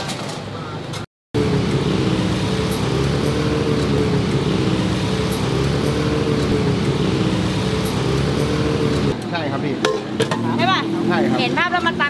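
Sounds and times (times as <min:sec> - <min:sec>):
street traffic: 0:00.0 - 0:12.0
engine idling: 0:01.4 - 0:09.2.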